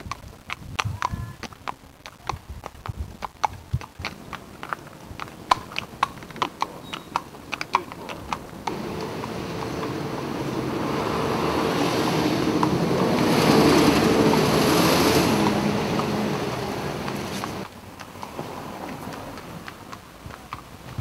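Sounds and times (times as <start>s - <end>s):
vehicle passing close by: 8.3s - 20.0s.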